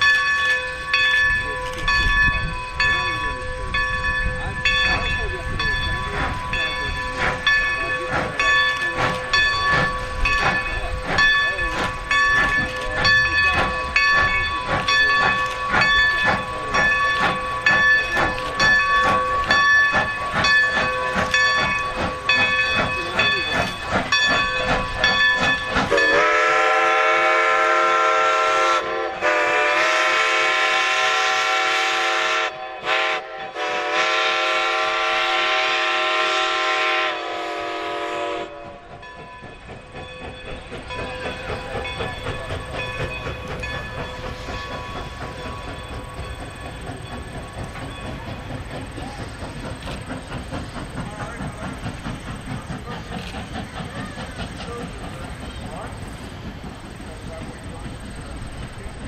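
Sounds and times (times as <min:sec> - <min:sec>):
steam locomotives chuffing: 0:00.0 - 0:59.0
steam whistle blowing: 0:25.9 - 0:38.8.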